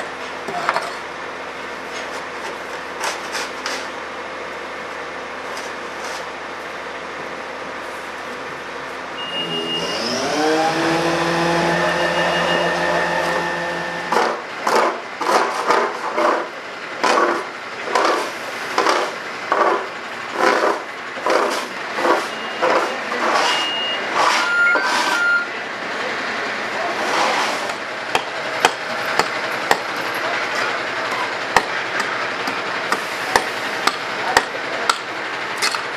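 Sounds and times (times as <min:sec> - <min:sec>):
fire engine engine running: 0:00.0 - 0:35.9
scraping snow and ice: 0:26.9 - 0:27.7.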